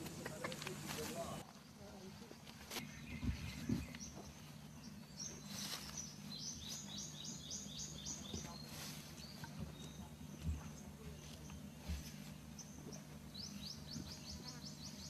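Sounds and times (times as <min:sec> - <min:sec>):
bird chirping: 0:00.0 - 0:15.0
soft rustles: 0:05.2 - 0:07.0, 0:08.2 - 0:12.7.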